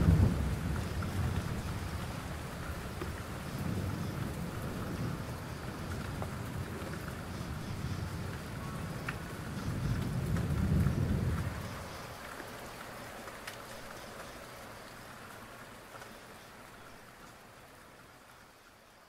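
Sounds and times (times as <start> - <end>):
low roll of thunder: 0.0 - 12.0
steady rain: 0.0 - 19.0.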